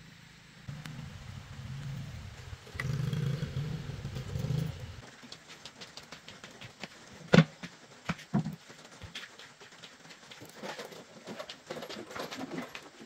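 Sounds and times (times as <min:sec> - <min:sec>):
scooter engine running: 0:00.7 - 0:05.0.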